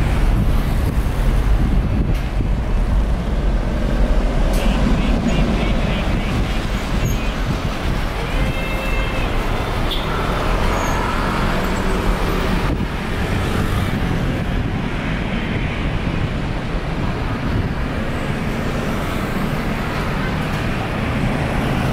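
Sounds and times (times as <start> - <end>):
jet engines rumbling: 0.0 - 8.6.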